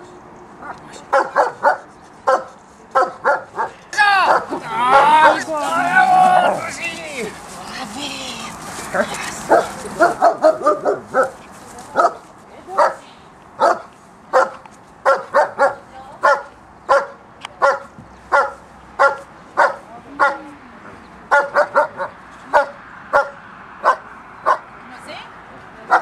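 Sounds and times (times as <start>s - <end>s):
dog barking sharply: 1.1s - 5.4s, 9.5s - 11.4s, 13.6s - 20.4s, 21.3s - 24.6s.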